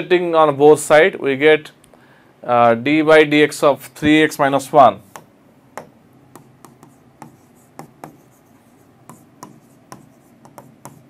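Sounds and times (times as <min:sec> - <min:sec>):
stylus tapping on glass screen: 0:05.1 - 0:08.2, 0:09.0 - 0:11.0.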